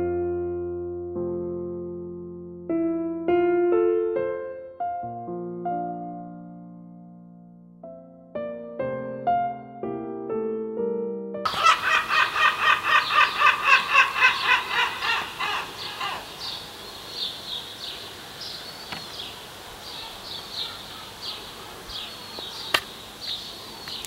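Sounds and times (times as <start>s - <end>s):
birds calling: 11.5s - 24.0s.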